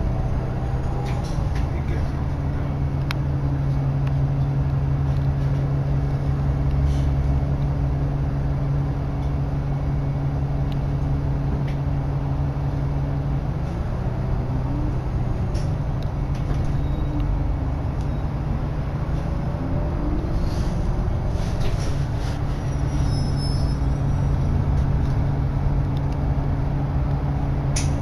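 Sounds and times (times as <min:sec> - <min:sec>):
bus engine hum: 0:00.0 - 0:28.0
road noise: 0:00.0 - 0:28.0.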